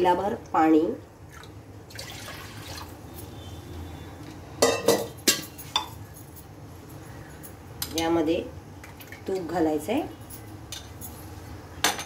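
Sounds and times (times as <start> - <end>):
water pouring into steel pot: 1.3 - 2.9.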